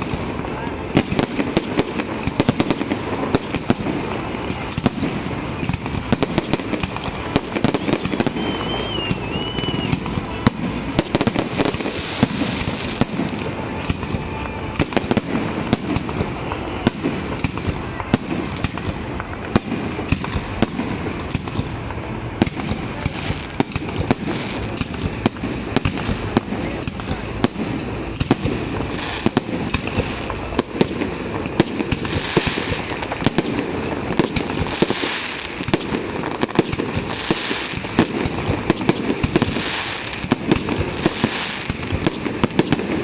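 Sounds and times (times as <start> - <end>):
wavering firework whistle: 0.0 - 25.3
firework crackling: 0.0 - 43.0.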